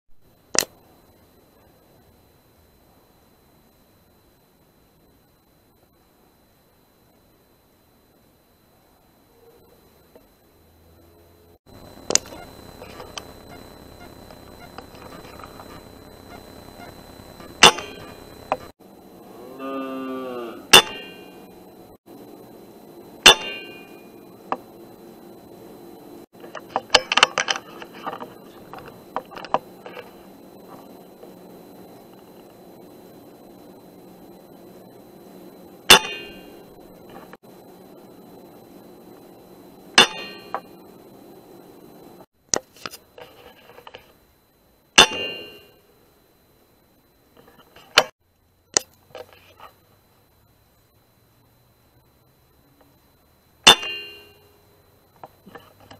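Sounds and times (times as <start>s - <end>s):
low animal call: 19.2s - 20.8s
metallic ring: 23.2s - 24.0s, 45.0s - 45.8s, 53.6s - 54.6s.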